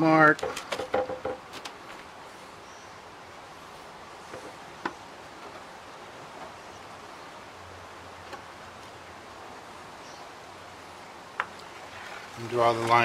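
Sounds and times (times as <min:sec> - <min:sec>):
outdoor background hiss: 0:00.0 - 0:13.0
plastic bucket clicks and knocks: 0:00.4 - 0:01.7.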